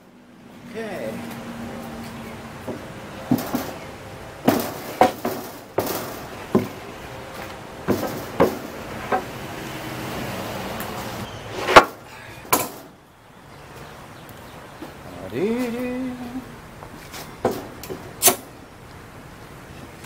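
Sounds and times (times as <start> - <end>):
wooden boards knocking: 2.6 - 6.9, 7.8 - 9.4, 11.6 - 13.0, 17.4 - 18.0.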